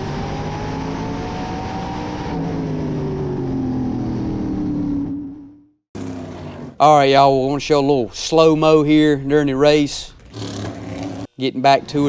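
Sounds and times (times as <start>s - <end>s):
race car engine: 0.0s - 7.5s, 10.1s - 12.0s.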